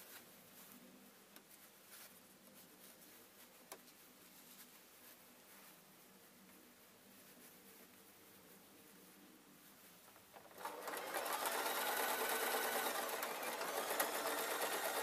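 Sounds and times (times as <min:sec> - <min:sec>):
sewing machine stitching: 0:10.4 - 0:15.0.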